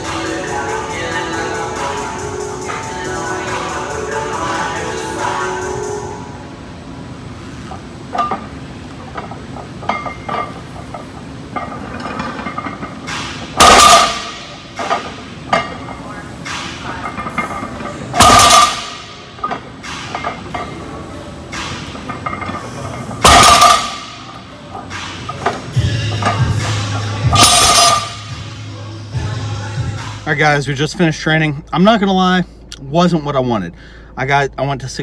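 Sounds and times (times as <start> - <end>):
weight plates clinking: 8.1 - 16.0, 21.6 - 28.3.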